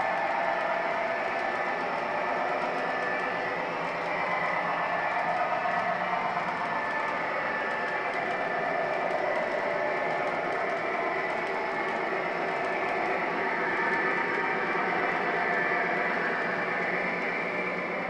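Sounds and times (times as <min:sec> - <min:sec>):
model train wheels rumbling: 0:00.0 - 0:18.0.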